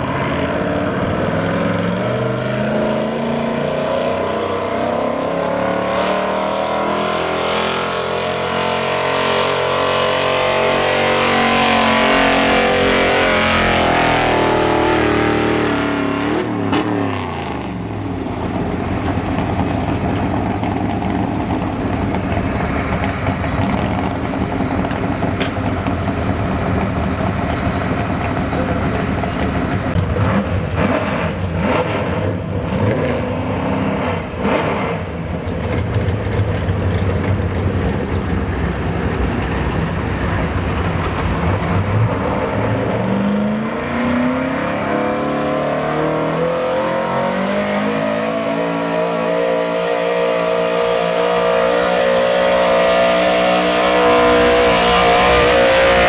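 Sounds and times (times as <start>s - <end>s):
truck engine at full throttle: 0.0s - 56.0s
truck engine idling: 17.8s - 30.2s.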